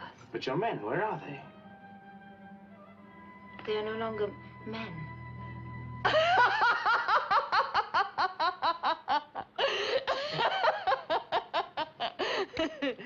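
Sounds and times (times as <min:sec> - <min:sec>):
woman laughing loudly: 0:06.1 - 0:13.0.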